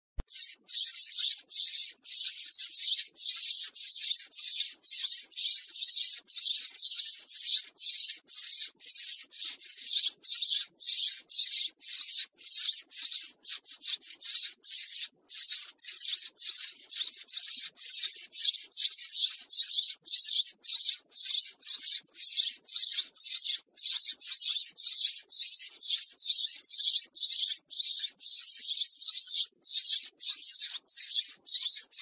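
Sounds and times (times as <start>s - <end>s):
sparrow chirping: 0.2s - 32.0s.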